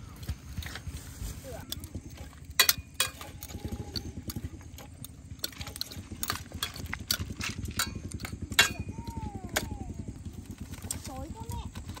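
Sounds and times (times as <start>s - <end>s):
low rumble: 0.0s - 12.0s
metal tongs scraping a pot: 1.7s - 8.9s.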